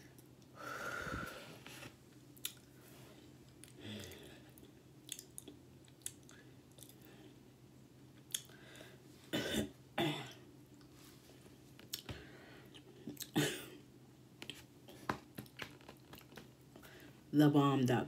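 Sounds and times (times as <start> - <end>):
woman clearing her throat: 9.4 - 10.4, 13.2 - 13.8.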